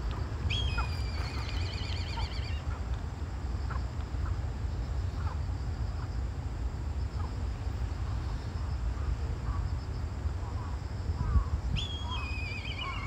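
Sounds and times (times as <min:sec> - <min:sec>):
faint insect trill: 0:00.0 - 0:13.0
wind rumbling on microphone: 0:00.0 - 0:13.0
faint bird chirps: 0:00.5 - 0:02.8, 0:10.6 - 0:13.0.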